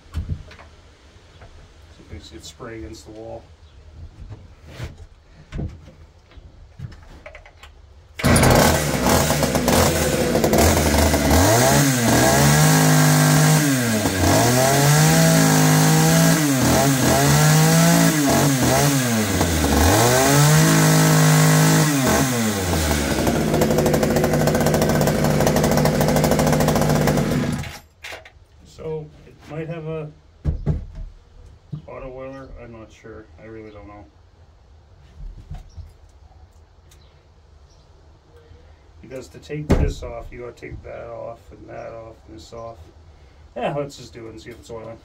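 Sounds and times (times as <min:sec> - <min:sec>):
chainsaw revving and idling: 0:08.2 - 0:27.8.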